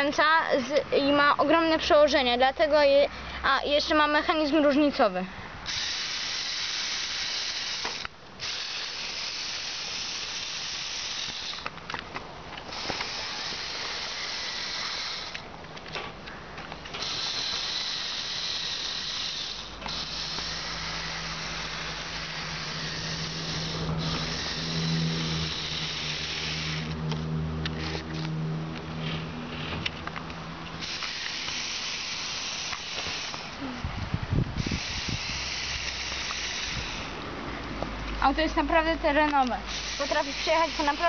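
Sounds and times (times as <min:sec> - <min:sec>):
toy car motors whirring: 0:05.7 - 0:12.0, 0:12.6 - 0:16.0, 0:16.8 - 0:28.3, 0:29.0 - 0:33.8, 0:34.5 - 0:37.2, 0:38.3 - 0:41.0.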